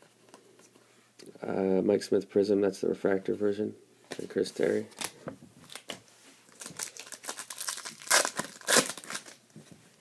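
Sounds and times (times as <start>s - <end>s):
wrapper crinkling and tearing: 4.9s - 9.4s.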